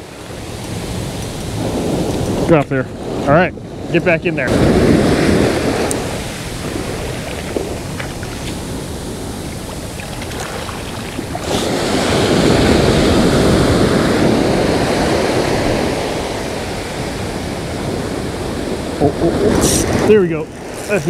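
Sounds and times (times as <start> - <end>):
ocean surf breaking: 0.0 - 21.0.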